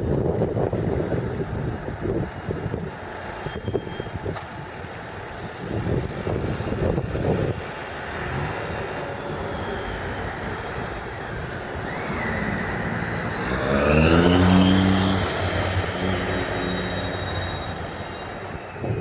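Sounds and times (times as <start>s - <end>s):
diesel locomotive engine running: 0.0s - 19.0s
wheels squealing on track: 0.4s - 19.0s
wind buffeting microphone: 5.4s - 8.9s, 17.8s - 19.0s.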